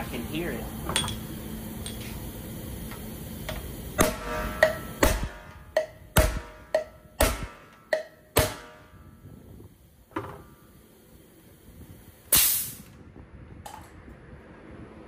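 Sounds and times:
metal tools clinking: 0.9 - 2.2
compressed air hiss: 11.1 - 12.9.

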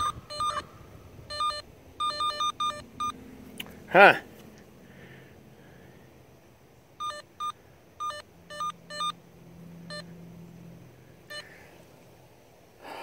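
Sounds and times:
short electronic beeps: 0.0 - 0.7, 1.3 - 3.2, 7.0 - 9.2.

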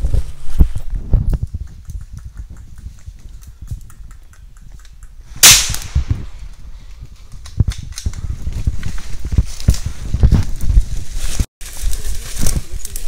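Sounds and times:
low thumps: 0.0 - 11.0
loud sharp crack: 5.4 - 6.3.

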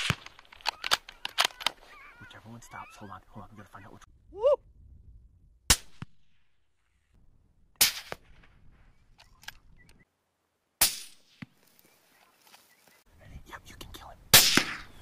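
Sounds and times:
rifle shots with echo: 14.3 - 14.9.

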